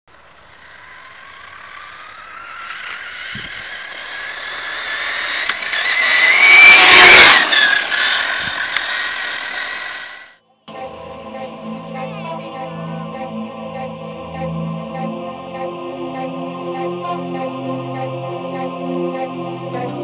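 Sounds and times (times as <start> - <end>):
toy car motor whining: 0.6 - 10.4.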